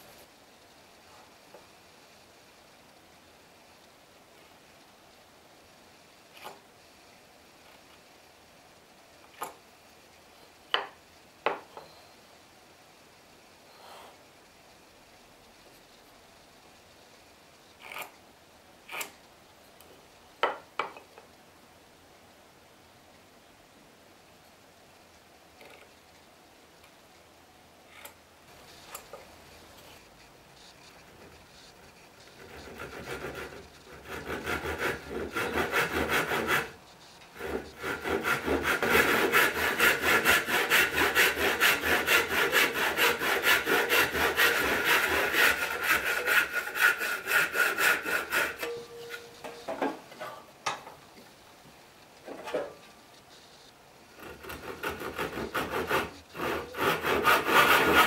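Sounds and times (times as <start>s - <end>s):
hand saw cutting wood: 32.4s - 36.8s, 37.4s - 48.8s, 54.2s - 58.0s.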